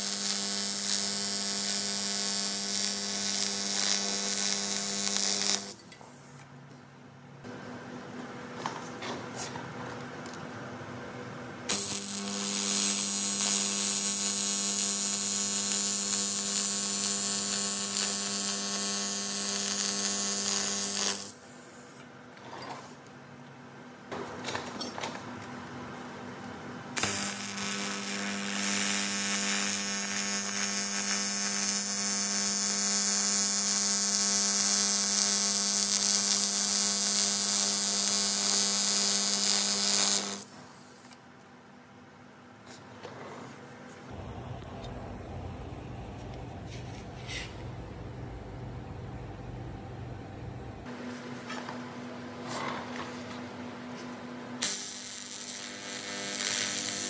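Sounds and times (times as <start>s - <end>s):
welding arc buzzing and hissing: 0.0s - 6.4s, 11.7s - 22.0s, 26.9s - 41.2s, 52.4s - 57.0s.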